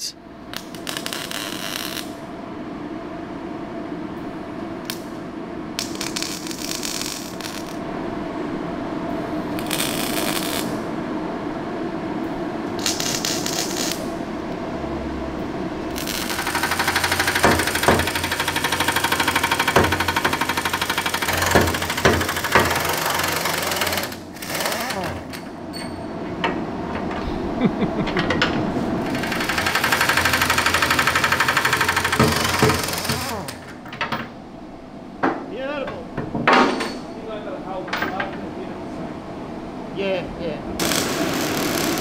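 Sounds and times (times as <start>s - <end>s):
welder arcing hiss: 0.0s - 2.2s, 5.8s - 7.8s, 9.5s - 10.9s, 12.8s - 14.1s, 15.9s - 25.3s, 29.0s - 33.6s, 40.8s - 42.0s
steady background hum: 0.0s - 42.0s
impact wrench hammering: 16.2s - 25.0s, 29.3s - 33.4s.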